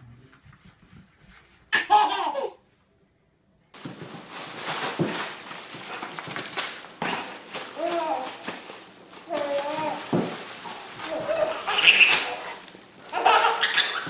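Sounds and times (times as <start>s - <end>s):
noisy room sound: 0.0s - 14.0s
baby laughing: 1.8s - 2.6s, 13.1s - 14.0s.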